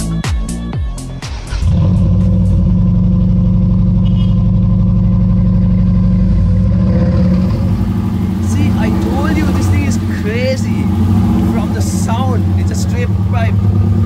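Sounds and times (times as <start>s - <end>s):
dance music: 0.0s - 2.8s
car engine idling: 1.0s - 14.0s.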